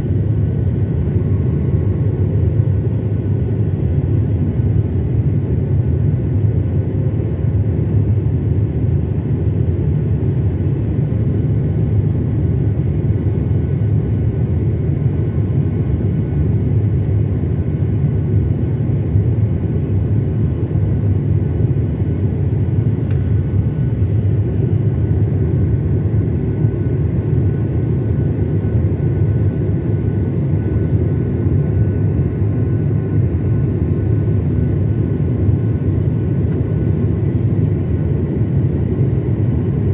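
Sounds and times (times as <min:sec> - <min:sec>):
airliner cabin rumble: 0:00.0 - 0:39.9
small click: 0:23.0 - 0:23.3.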